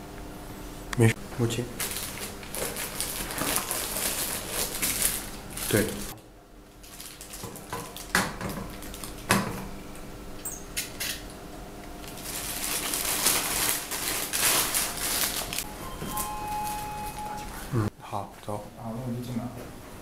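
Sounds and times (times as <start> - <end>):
plastic wrap crinkling: 1.8 - 9.3, 12.0 - 15.7.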